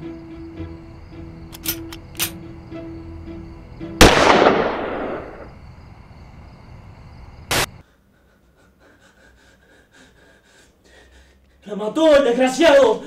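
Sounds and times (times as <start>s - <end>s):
gunshot with echo: 4.0s - 5.5s.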